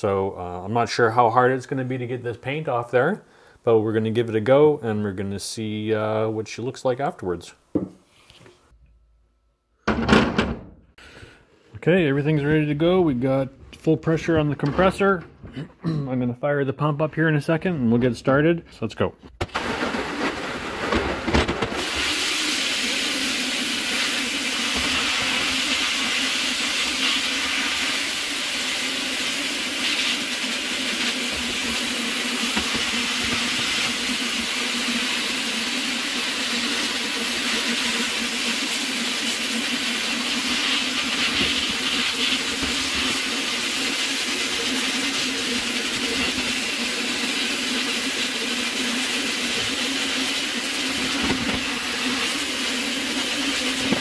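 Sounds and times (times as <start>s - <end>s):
hiss of blast nozzle: 21.8s - 54.0s.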